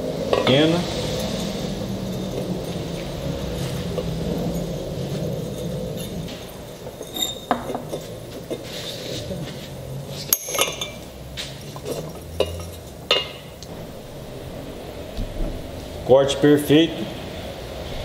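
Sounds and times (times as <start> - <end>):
glass bottle clinking and ticking: 5.5 - 8.6, 10.3 - 11.1, 11.7 - 13.7.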